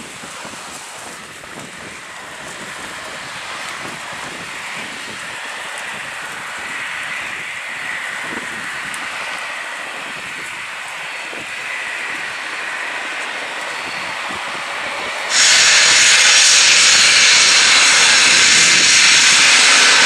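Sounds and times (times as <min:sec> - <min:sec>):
helicopter hovering: 0:00.0 - 0:15.4
high whine: 0:00.0 - 0:20.0.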